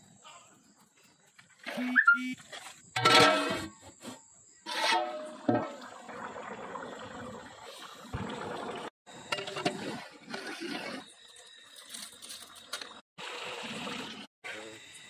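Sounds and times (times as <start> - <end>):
curry boiling and bubbling: 4.8 - 11.9.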